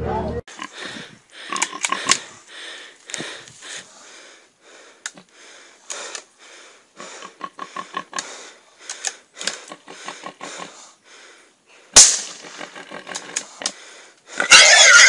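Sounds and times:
breathy sniffs and gasps: 0:00.5 - 0:12.0, 0:13.2 - 0:14.5.

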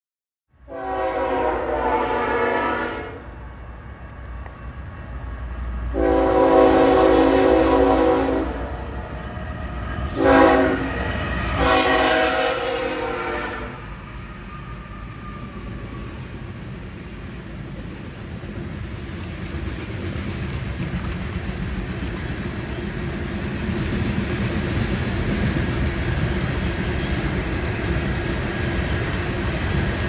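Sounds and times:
locomotive air horn blasts: 0:00.6 - 0:03.3, 0:05.9 - 0:09.1, 0:10.1 - 0:13.9
train rumbling: 0:00.6 - 0:30.0.

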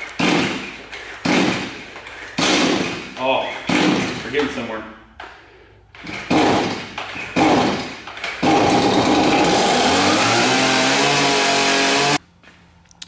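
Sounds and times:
chainsaw pull cord: 0:07.4 - 0:12.2
chainsaw engine running loudly: 0:08.5 - 0:12.2.

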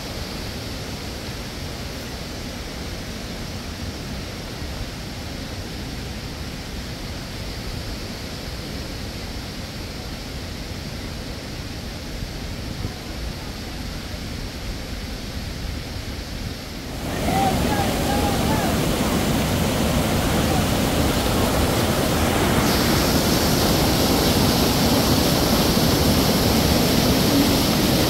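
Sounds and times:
steady rushing noise: 0:14.3 - 0:28.0.

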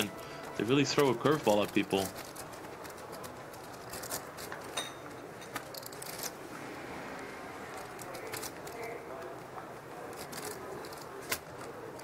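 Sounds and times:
poker chips clicking: 0:00.0 - 0:04.7, 0:05.5 - 0:06.4, 0:07.7 - 0:09.0, 0:10.0 - 0:12.0
room hum: 0:00.0 - 0:12.0.

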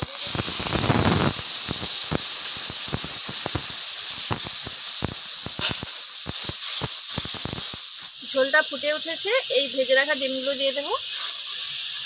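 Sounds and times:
small crackles and pops: 0:00.0 - 0:09.3
water sizzling in hot pan: 0:00.0 - 0:12.0.

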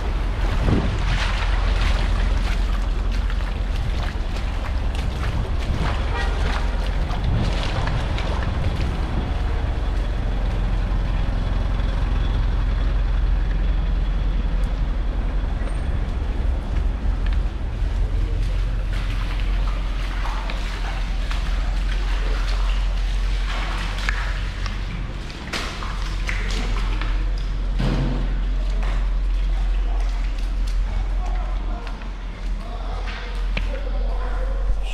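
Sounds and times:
wind buffeting microphone: 0:00.0 - 0:19.7
street and water noise: 0:00.0 - 0:34.9.

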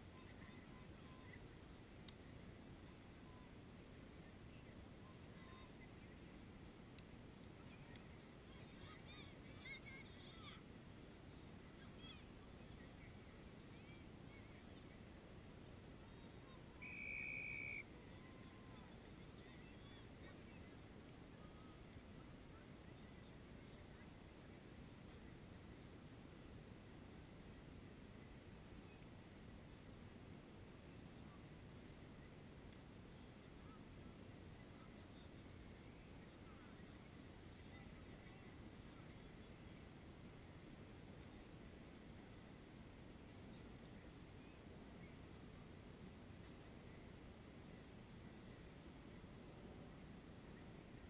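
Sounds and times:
faint low rumble: 0:00.0 - 0:51.0
faint outdoor hum: 0:00.0 - 0:51.0
referee's whistle blast: 0:16.8 - 0:17.8
short high calls: 0:16.8 - 0:17.9.

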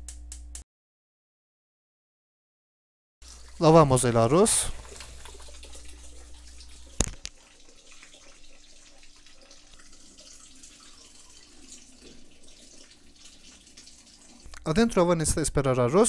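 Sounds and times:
water trickling into a sink: 0:03.2 - 0:15.1.

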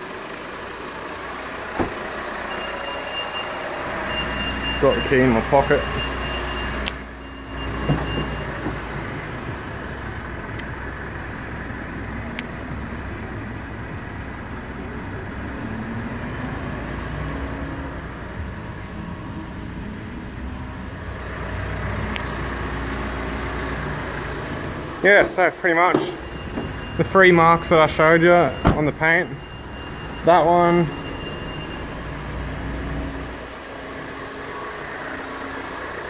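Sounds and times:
car door latches clicking: 0:01.8 - 0:02.0.

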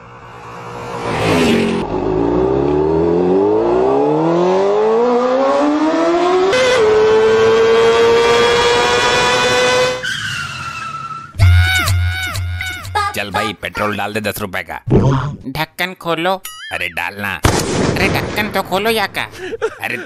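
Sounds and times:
motorcycle engine accelerating: 0:00.2 - 0:10.0.

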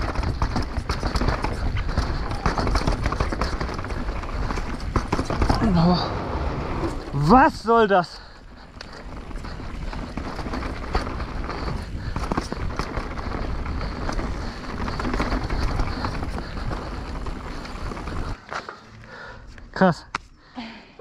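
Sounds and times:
bike rattling clicks over rocks: 0:00.0 - 0:06.1, 0:06.8 - 0:20.3
wind buffeting microphone: 0:00.0 - 0:18.4
bike tyre rumble: 0:00.0 - 0:19.8.

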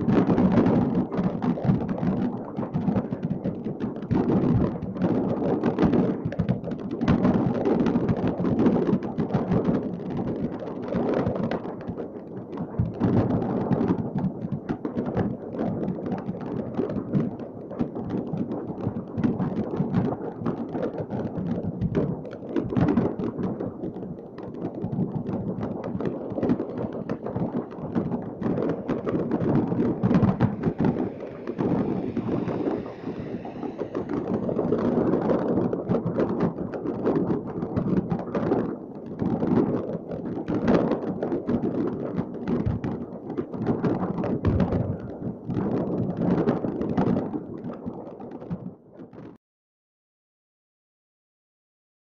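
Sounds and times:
fireworks crackling and banging: 0:00.0 - 0:49.4
low rumble of booms: 0:25.1 - 0:37.6.

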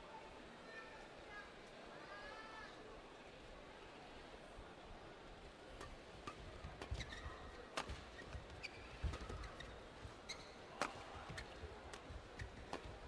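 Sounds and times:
low arena murmur: 0:00.0 - 0:13.0
court shoes squeaking: 0:05.8 - 0:13.0.

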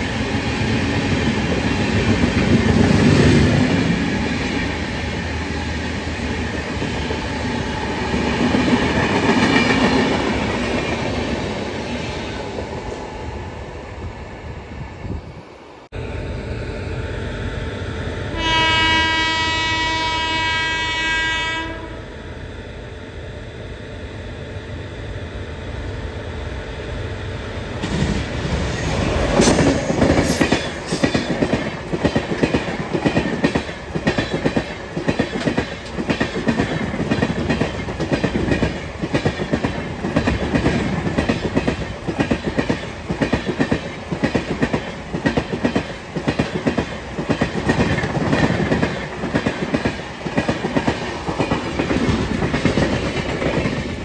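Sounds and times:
locomotive horn: 0:17.8 - 0:22.1
train rumble: 0:23.6 - 0:54.0.

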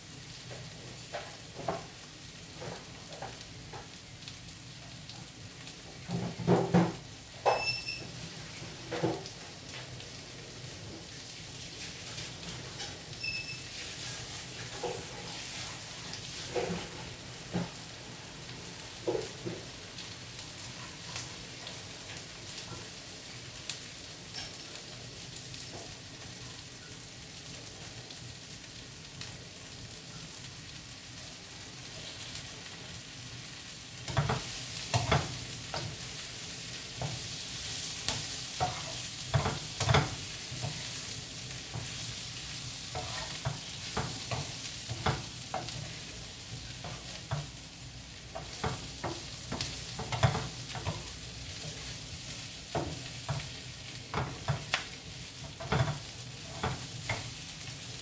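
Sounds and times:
food sizzling in oil: 0:00.0 - 0:58.0
spatula scraping a pan: 0:11.6 - 0:17.8, 0:34.1 - 0:57.4.

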